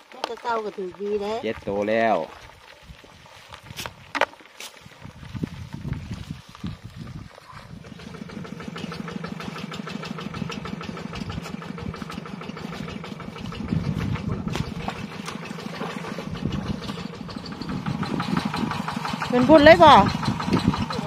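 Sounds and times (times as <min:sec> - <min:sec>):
small engine running: 0:07.5 - 0:21.0.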